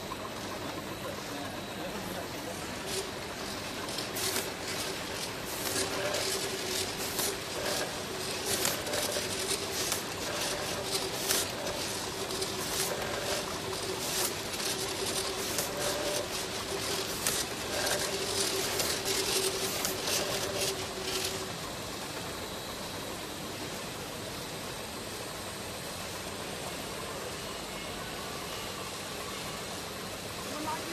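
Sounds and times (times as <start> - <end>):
motor hum: 0.0 - 23.1
steady hiss: 0.0 - 30.9
machine clicking and clattering: 2.4 - 21.6.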